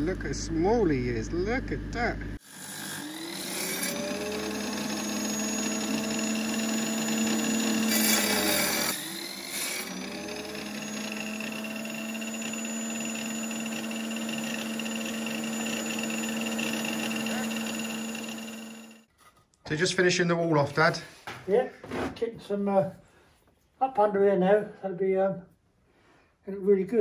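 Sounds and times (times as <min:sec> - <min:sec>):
saw cutting brick: 0:02.4 - 0:19.1
tile saw motor spinning: 0:02.4 - 0:19.1.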